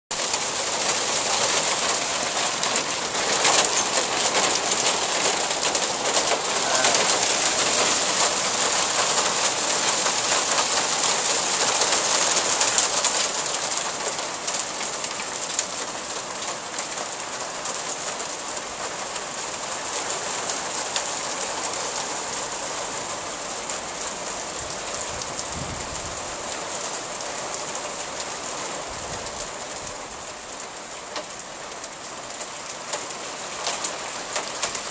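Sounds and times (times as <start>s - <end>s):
hail pelting deck and furniture: 0.2s - 22.3s.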